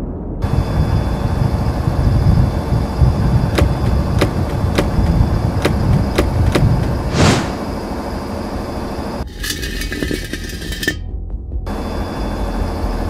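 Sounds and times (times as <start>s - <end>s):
cartoon tank engine rumble: 1.2s - 10.5s
short whoosh: 7.0s - 7.8s.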